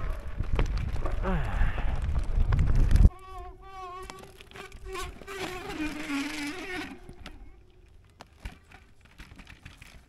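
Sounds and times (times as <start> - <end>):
electric bike motor whining: 2.9 - 7.6.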